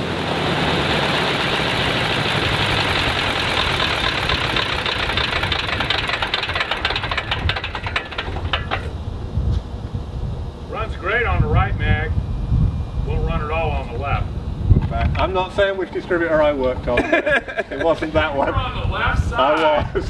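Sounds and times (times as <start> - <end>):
propeller winding down: 0.0 - 12.1
radial aircraft engine running: 0.0 - 18.6.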